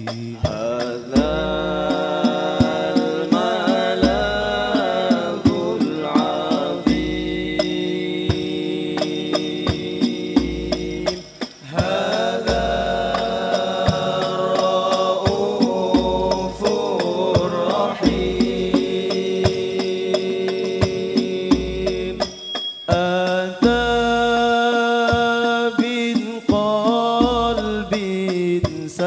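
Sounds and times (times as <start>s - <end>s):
frame drums in steady rhythm: 0.0s - 29.0s
men singing in unison: 0.0s - 29.0s.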